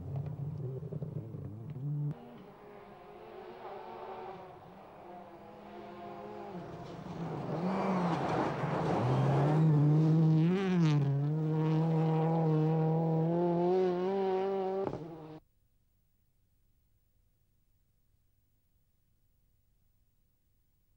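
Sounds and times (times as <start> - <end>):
rally car engine passing: 0.0 - 15.4.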